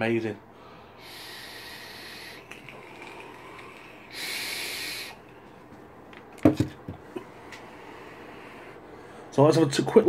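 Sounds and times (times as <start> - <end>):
airy hiss of vapour breaths: 0.6 - 5.6, 7.1 - 9.3.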